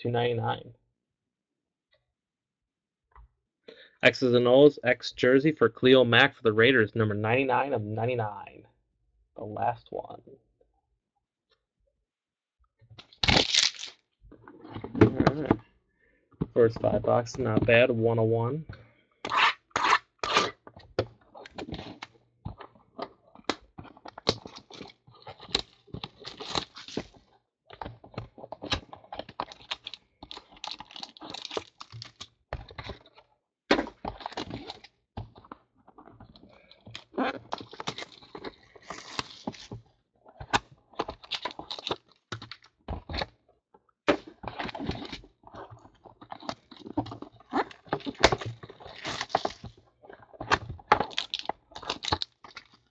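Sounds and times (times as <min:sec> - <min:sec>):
plastic wrap crinkling and tearing: 0:13.1 - 0:14.0, 0:24.2 - 0:27.2, 0:29.5 - 0:32.3, 0:37.2 - 0:39.7, 0:41.2 - 0:42.5, 0:47.6 - 0:49.7, 0:51.0 - 0:52.9.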